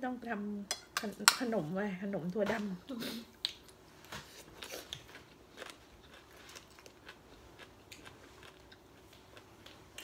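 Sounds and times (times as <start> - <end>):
chewing and crunching food: 3.4 - 10.0.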